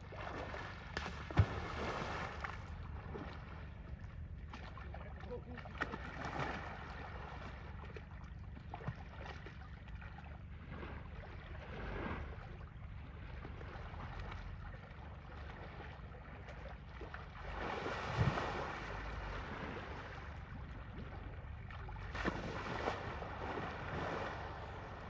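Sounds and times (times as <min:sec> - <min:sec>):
water sloshing and splashing: 0:00.0 - 0:25.0
wind rumbling on microphone: 0:17.4 - 0:25.0.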